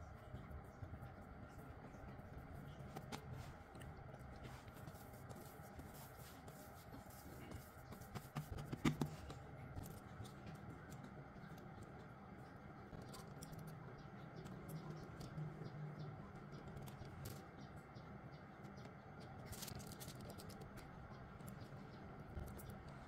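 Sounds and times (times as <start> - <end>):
low steady hum: 0.0 - 23.0
piping bag crinkling and clicking: 19.4 - 20.9.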